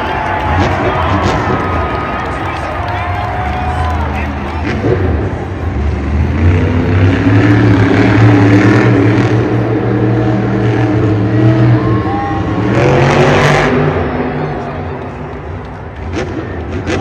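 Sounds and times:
monster truck engine revving: 0.0 - 17.0.

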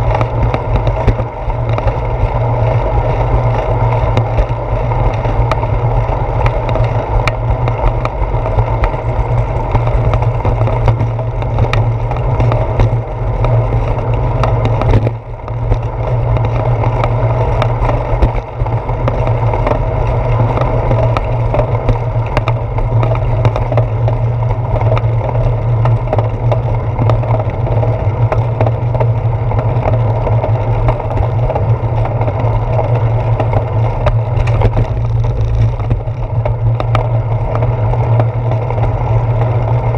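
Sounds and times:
bicycle rolling on concrete: 0.0 - 39.9
wind noise: 0.0 - 39.9
knocks from pavement bumps: 33.4 - 38.4.

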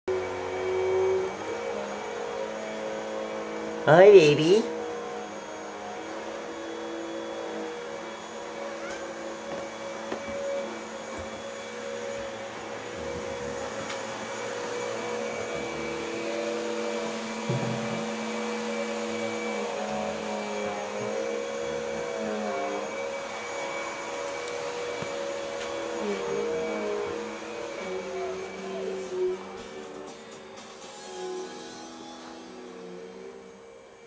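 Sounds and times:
low knock: 17.4 - 18.0.

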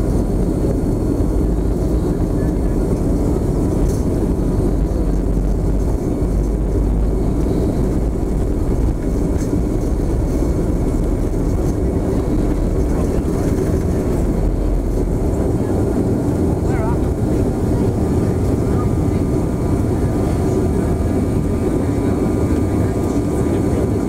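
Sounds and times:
jet engines at takeoff power: 0.0 - 24.0
wheels rumbling on runway: 0.0 - 24.0.

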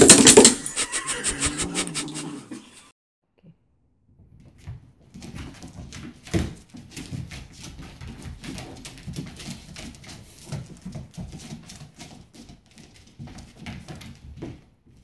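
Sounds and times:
cat paws scrabbling on wooden floor: 4.2 - 15.0.

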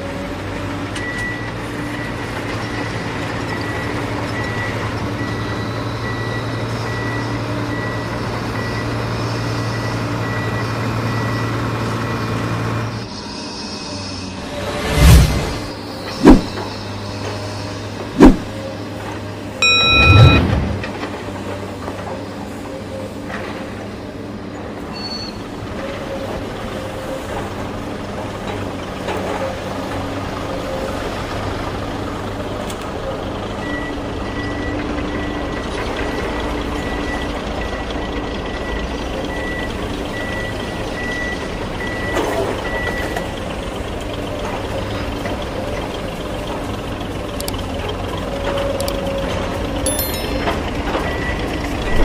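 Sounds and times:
excavator engine hum: 0.0 - 52.0
loud burst with horn tone: 19.6 - 20.9
reversing alarm beeps: 19.6 - 21.0, 36.8 - 43.2.

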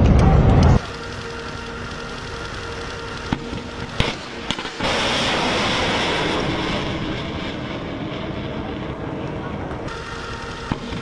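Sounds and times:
rocket motor roaring: 0.0 - 11.0
sharp cracks: 0.6 - 8.9.

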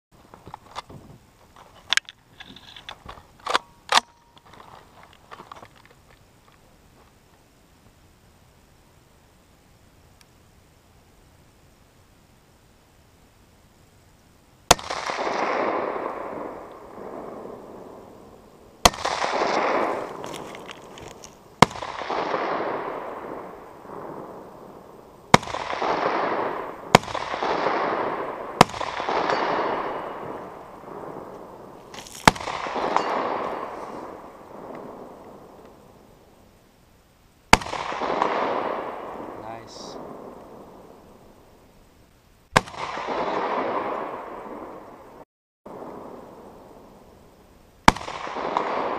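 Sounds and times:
rifle shots with echo: 14.7 - 20.5, 21.6 - 36.0, 37.5 - 41.3, 42.5 - 47.1, 47.8 - 48.9.

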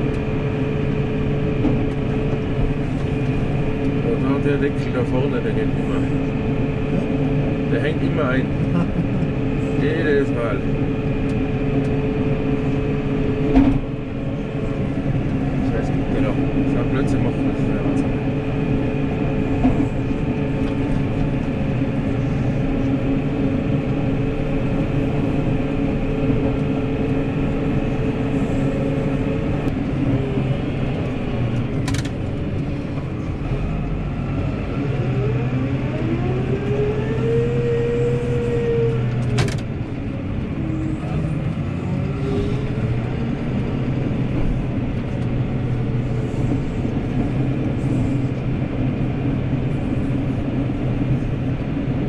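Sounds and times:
tractor diesel engine running: 0.0 - 52.0
whine: 0.0 - 52.0.

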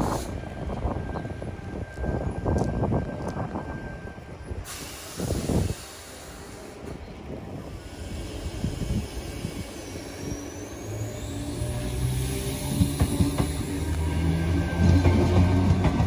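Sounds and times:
air brakes hissing: 0.0 - 0.5, 4.6 - 7.0, 7.7 - 13.8
train rumble: 0.0 - 16.0.

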